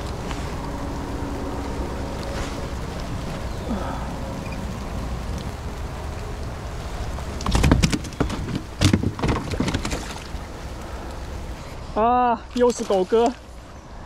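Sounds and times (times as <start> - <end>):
steady rain falling: 0.0 - 14.0
sharp knocks: 7.4 - 10.2.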